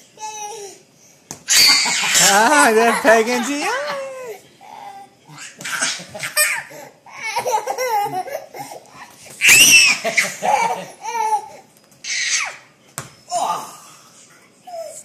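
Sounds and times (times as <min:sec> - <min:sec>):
high-pitched squeal of laughter: 0:01.5 - 0:02.5, 0:09.4 - 0:10.7
toddler laughing: 0:01.5 - 0:11.6.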